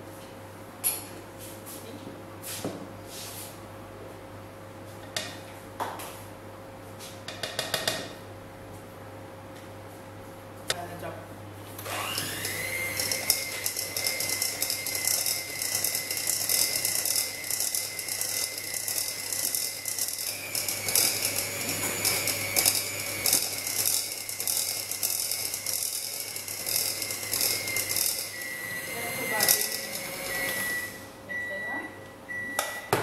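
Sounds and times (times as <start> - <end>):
electric mixer motor whine: 11.8 - 31.1
beaters clattering in bowl: 12.2 - 28.6, 29.2 - 30.7.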